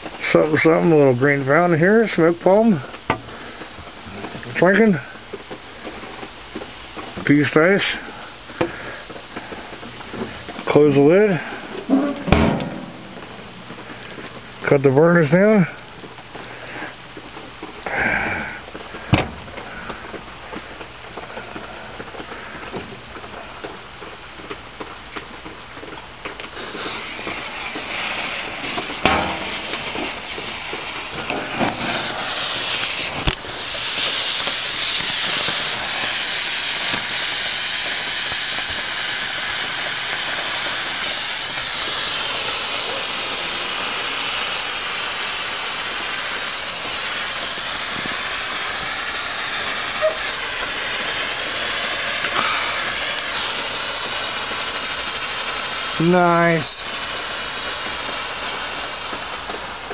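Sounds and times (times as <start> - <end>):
firework fountain hissing: 0.0 - 59.9
sharp cracks: 8.4 - 14.4, 25.8 - 59.9.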